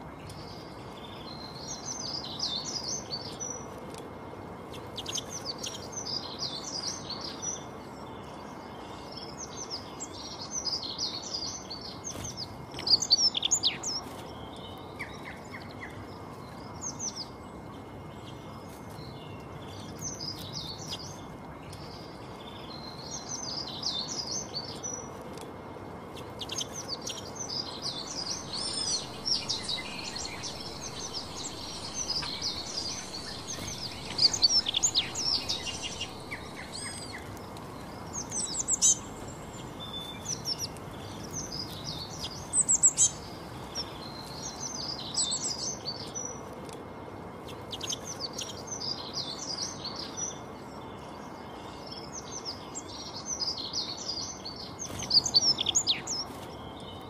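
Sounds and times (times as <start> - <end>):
songbirds chirping and singing: 0.2 - 4.0, 26.2 - 46.4.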